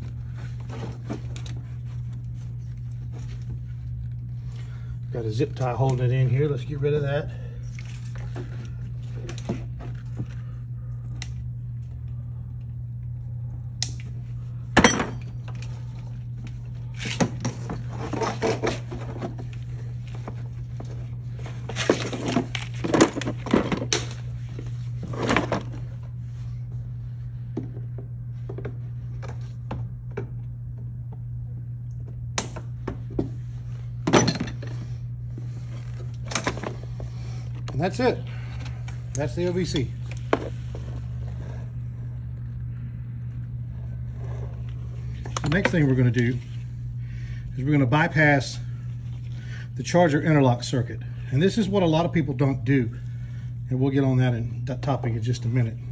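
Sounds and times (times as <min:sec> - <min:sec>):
steady low hum: 0:00.0 - 0:55.9.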